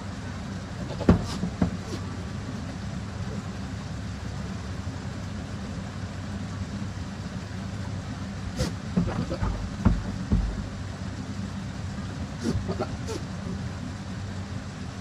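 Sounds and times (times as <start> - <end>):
low background rumble: 0.0 - 15.0
knocks and scuffling thumps: 0.9 - 2.0, 8.6 - 10.8
hooves scraping hard floor: 8.6 - 10.7.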